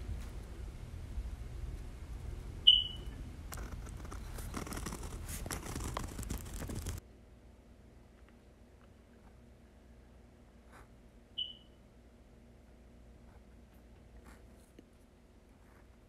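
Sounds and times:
pen scratching on paper: 0:03.6 - 0:07.0.

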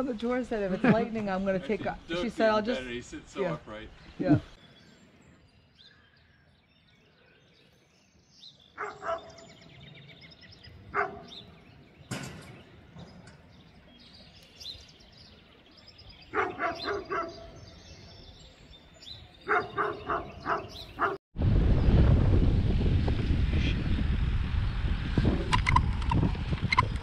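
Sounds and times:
birds chirping: 0:00.0 - 0:21.2
dog barking: 0:08.8 - 0:09.5, 0:10.9 - 0:11.4, 0:16.3 - 0:17.6, 0:19.4 - 0:21.2.

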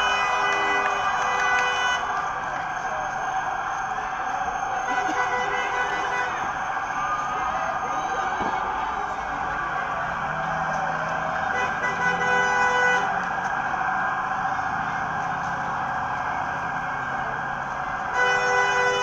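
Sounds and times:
vehicle horns honking: 0:00.0 - 0:02.1, 0:04.8 - 0:06.7, 0:11.4 - 0:13.2, 0:18.1 - 0:19.0
loud traffic noise: 0:00.0 - 0:19.0.

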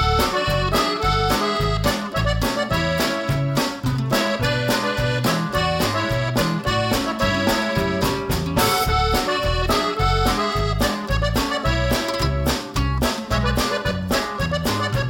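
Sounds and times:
accordion melody: 0:00.0 - 0:15.0
bouncing bass beat: 0:00.0 - 0:15.0.

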